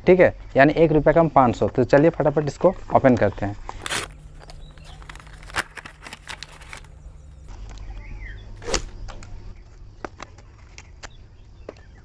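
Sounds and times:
scissors cutting plastic packaging: 3.7 - 7.0
paper envelope tearing and rustling: 3.7 - 7.5, 8.6 - 8.9.

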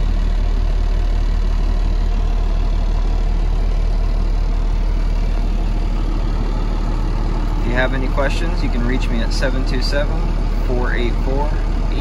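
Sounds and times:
diesel truck engine idling: 0.0 - 12.0.

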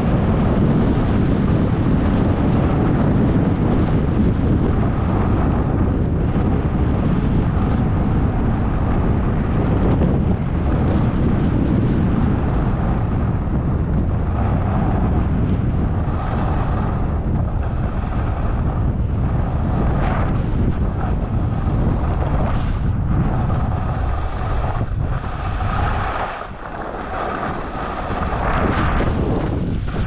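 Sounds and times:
wind buffeting microphone: 0.0 - 30.0.

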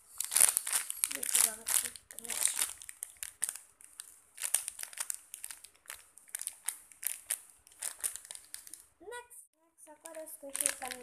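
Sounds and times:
plastic bag crinkling: 0.1 - 8.9, 10.0 - 11.0.

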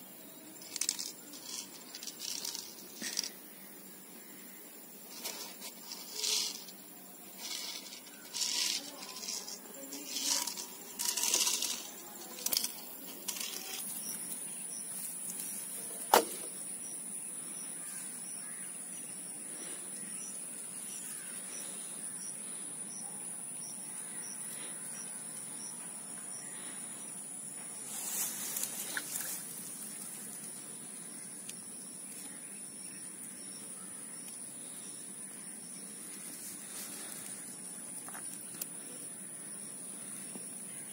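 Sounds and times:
plastic bottle rustling: 5.1 - 6.8, 7.4 - 14.3
high-pitched insect drone: 5.2 - 14.8.

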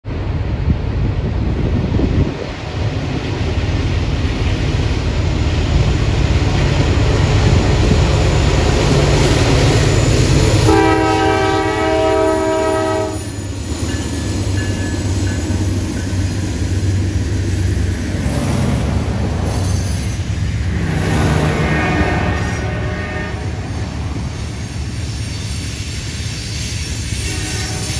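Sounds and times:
diesel locomotives rumbling: 0.0 - 27.9
locomotive horn chord: 10.7 - 13.2, 21.0 - 23.7.

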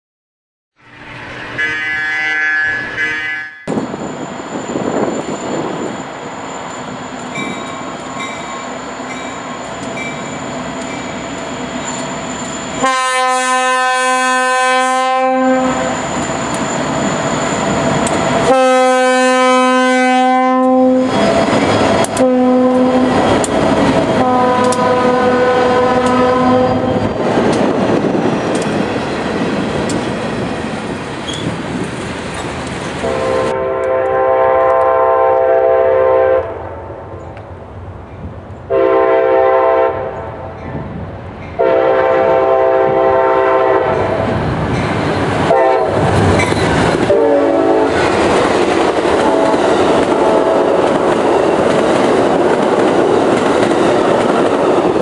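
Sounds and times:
locomotive engines rumbling: 0.8 - 55.0
train air horn blasts: 1.5 - 3.7, 12.8 - 16.0, 18.4 - 21.2, 22.2 - 23.2, 24.2 - 27.0, 33.0 - 36.7, 38.7 - 40.4, 41.6 - 44.2, 45.4 - 46.1, 47.0 - 48.1, 49.2 - 50.7
train wheels clacking on rails: 15.7 - 18.7, 20.6 - 33.2, 43.9 - 55.0.

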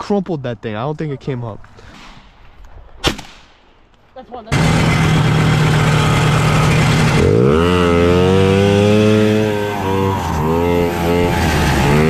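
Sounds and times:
snowmobile engine revving: 4.5 - 12.0.

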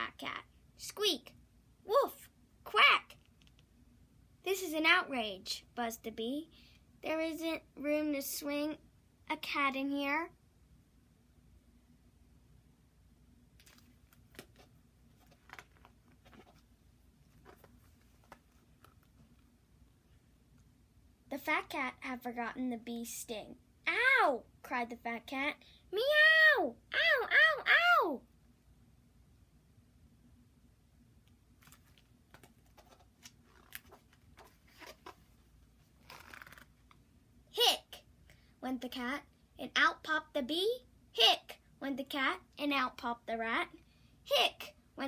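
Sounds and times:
book pages rustling: 13.6 - 19.6, 31.5 - 37.0.

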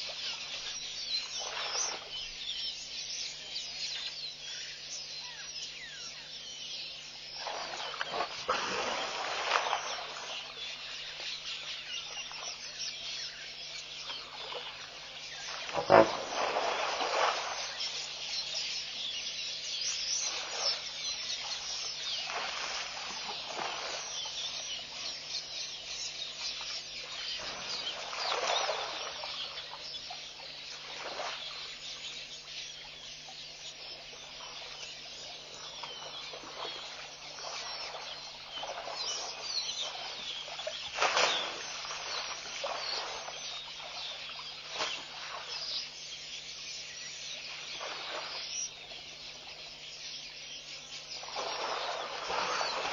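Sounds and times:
birds chirping: 0.0 - 52.9
elephant splashing in mud: 7.4 - 10.4, 15.6 - 17.8, 40.9 - 43.3.

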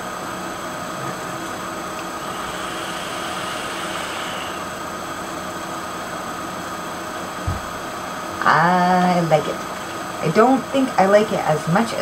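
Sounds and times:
background hum and hiss: 0.0 - 12.0
low thump: 7.4 - 7.7.

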